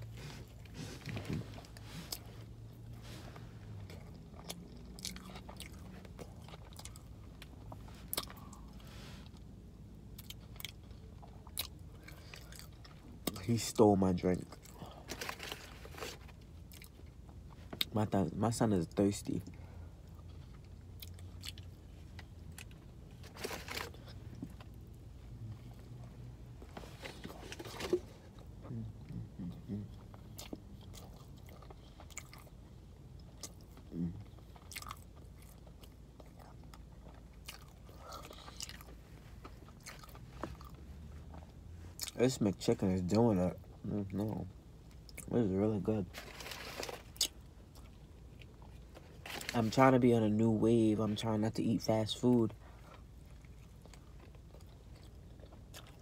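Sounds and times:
person chewing food: 0.0 - 13.4, 20.0 - 42.2, 52.8 - 56.0
steady low hum: 0.0 - 56.0.

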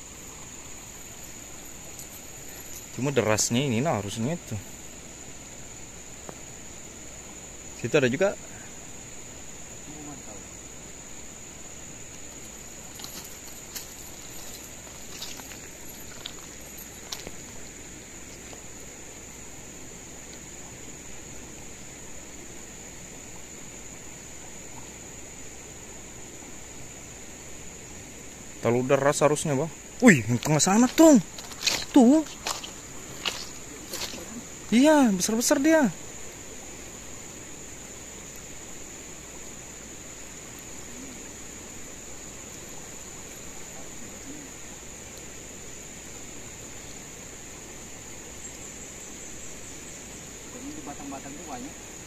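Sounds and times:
high-pitched insect drone: 0.0 - 52.0
river water running over stones: 0.0 - 52.0
river rushing over stones: 11.7 - 22.4, 28.4 - 40.6
bare feet crunching on pebbles: 12.7 - 17.8, 30.0 - 34.8.

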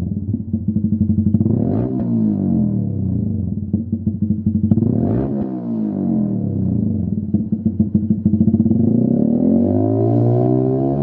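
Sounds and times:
motorcycle engine idling: 0.0 - 5.1, 5.7 - 8.9.

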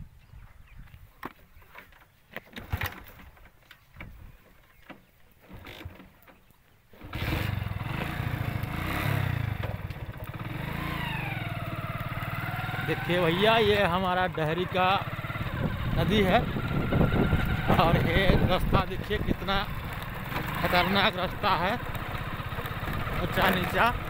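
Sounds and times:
motorcycle engine running: 7.0 - 24.0.

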